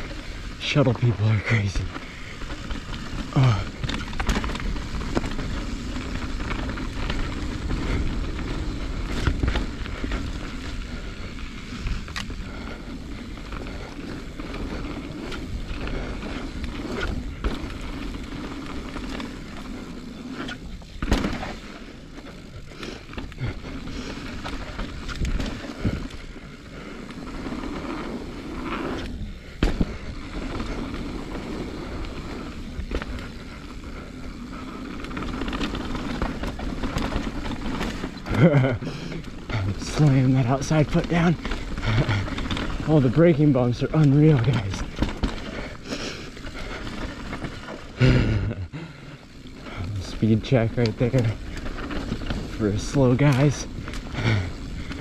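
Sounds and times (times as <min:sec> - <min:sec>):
bike knocking over bumps: 0:20.4 - 0:21.9, 0:29.0 - 0:33.6.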